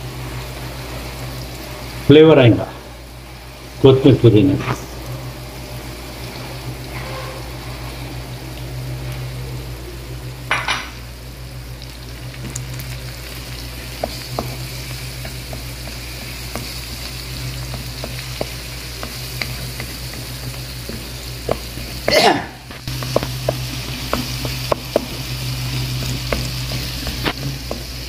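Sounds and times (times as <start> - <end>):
egg sizzling in hot oil: 0.0 - 28.0
wooden spatula tapping pan: 13.9 - 16.8, 17.6 - 22.2, 22.9 - 28.0.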